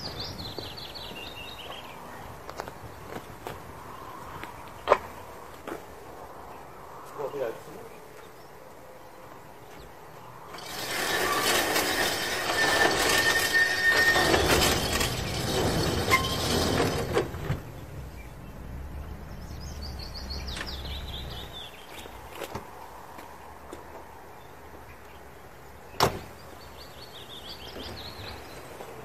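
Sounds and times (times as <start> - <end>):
garage door rolling shut: 10.5 - 18.2.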